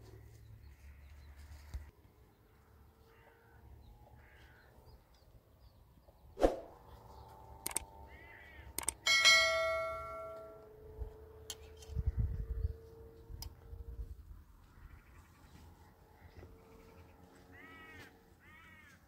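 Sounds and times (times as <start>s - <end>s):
small clicks: 7.6s - 7.9s, 8.8s - 9.0s.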